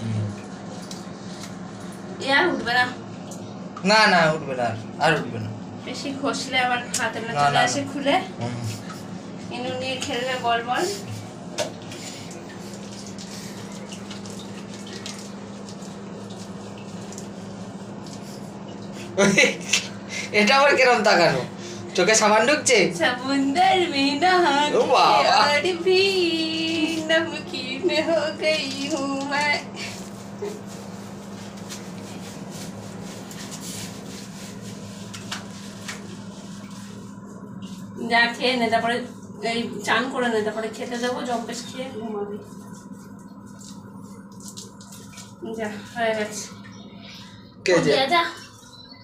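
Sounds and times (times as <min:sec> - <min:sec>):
steady low hum: 0:00.0 - 0:49.0
tap water running: 0:00.0 - 0:49.0
scratchy rubbing of soap on fur: 0:29.8 - 0:37.9.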